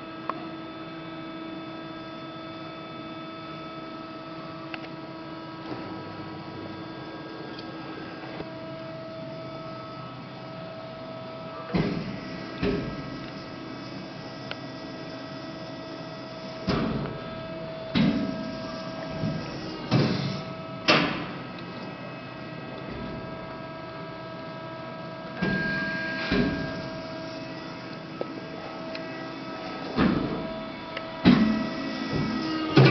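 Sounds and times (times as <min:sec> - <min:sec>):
hydraulic pump motor humming: 0:00.0 - 0:32.9.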